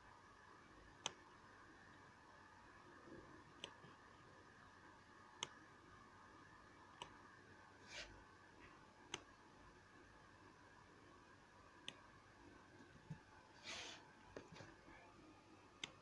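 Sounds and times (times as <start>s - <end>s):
low steady hum: 0.0s - 16.0s
computer mouse clicks: 1.0s - 1.2s, 3.6s - 3.9s, 9.1s - 9.3s, 15.8s - 16.0s.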